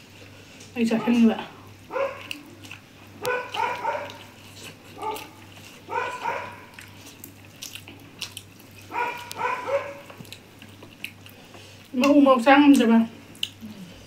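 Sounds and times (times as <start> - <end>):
dog barking: 0.9 - 1.3, 1.9 - 2.4, 3.2 - 4.4, 5.0 - 6.8, 8.9 - 10.1.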